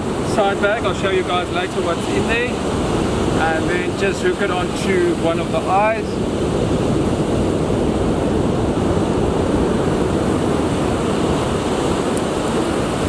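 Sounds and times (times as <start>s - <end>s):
surf: 0.0s - 13.0s
wind buffeting microphone: 0.0s - 13.0s.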